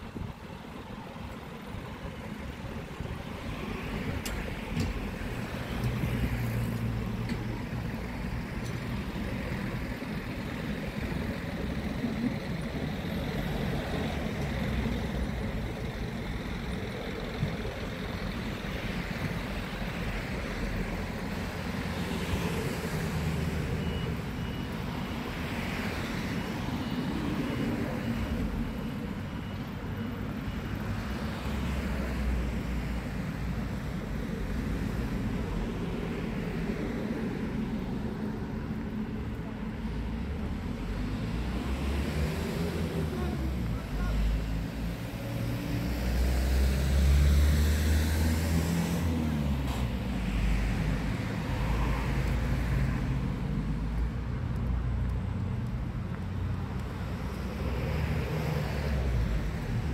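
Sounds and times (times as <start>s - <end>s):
cars passing: 0.0s - 59.9s
faint high beep: 23.6s - 31.0s.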